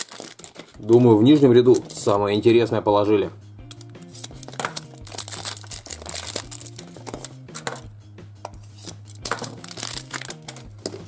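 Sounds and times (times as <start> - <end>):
plastic wrapper crinkling: 0.0 - 2.2, 3.7 - 7.8, 8.7 - 11.0
quiet background music: 0.0 - 11.0.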